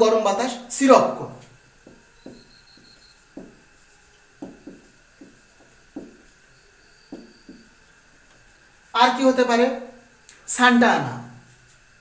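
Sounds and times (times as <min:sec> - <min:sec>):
marker tapping on whiteboard: 0:01.8 - 0:03.6, 0:04.4 - 0:06.4, 0:07.1 - 0:07.8
marker squeak: 0:06.5 - 0:07.8.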